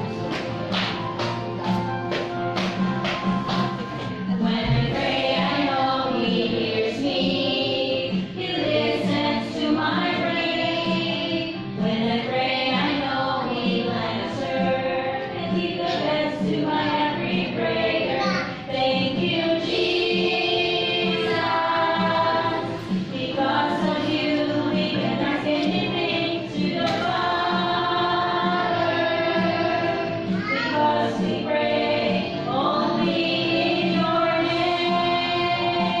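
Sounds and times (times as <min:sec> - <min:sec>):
children's choir singing: 0:03.8 - 0:36.0.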